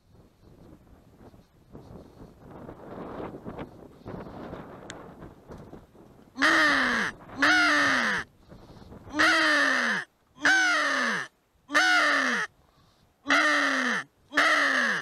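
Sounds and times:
crow decoy caller cawing: 0:06.4 - 0:08.3, 0:09.1 - 0:12.5, 0:13.2 - 0:15.0.

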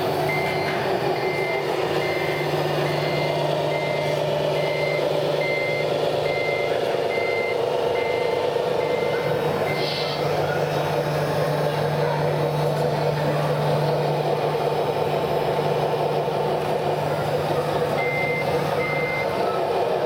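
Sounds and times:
hydraulic pump humming: 0:00.0 - 0:20.0
short reversing beeps: 0:00.3 - 0:10.7, 0:17.8 - 0:19.6.

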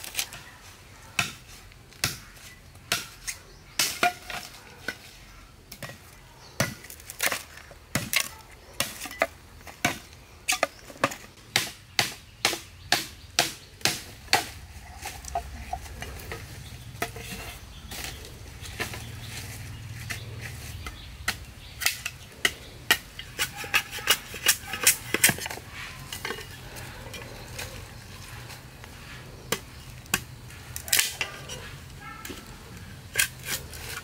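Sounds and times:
cleaver chopping bamboo: 0:02.9 - 0:04.5, 0:06.6 - 0:16.4.

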